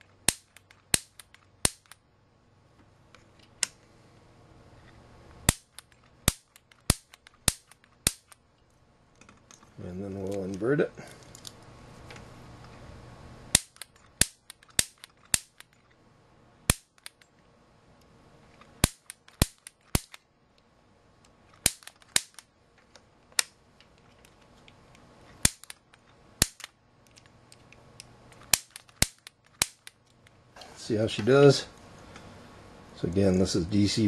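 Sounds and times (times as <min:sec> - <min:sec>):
piezo igniter snapping: 0:00.2 - 0:02.0, 0:05.4 - 0:08.4, 0:13.5 - 0:15.8, 0:16.7 - 0:17.3, 0:18.6 - 0:20.3, 0:21.2 - 0:30.3.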